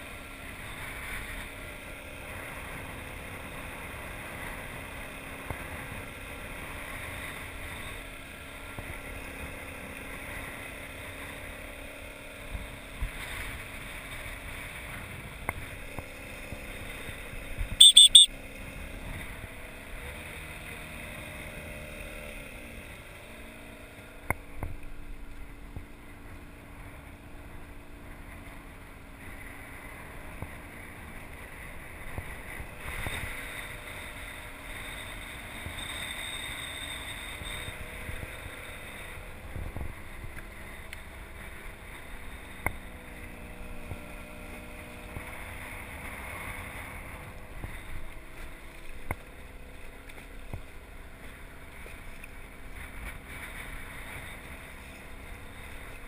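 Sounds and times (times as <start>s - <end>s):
outboard motor humming: 0.0s - 56.0s
water and wind wash: 0.0s - 56.0s
shrill high-pitched pulses: 17.8s - 18.3s.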